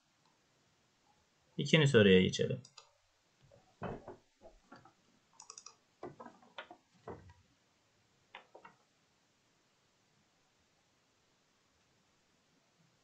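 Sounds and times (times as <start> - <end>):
computer mouse clicks: 2.6 - 2.9, 5.4 - 6.8.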